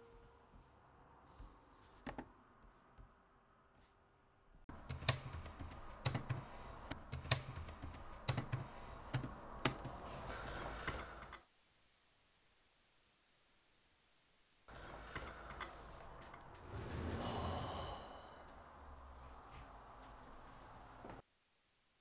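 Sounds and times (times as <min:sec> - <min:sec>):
laptop keyboard typing: 0:04.7 - 0:10.2.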